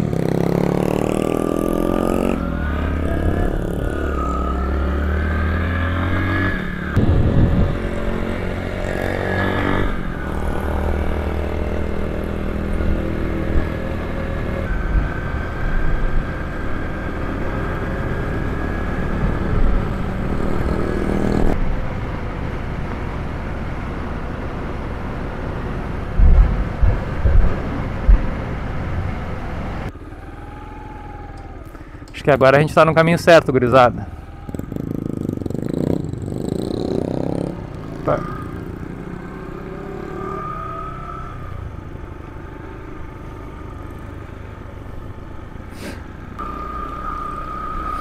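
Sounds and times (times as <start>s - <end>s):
motorcycle engine accelerating: 0.0s - 32.2s, 33.5s - 48.0s.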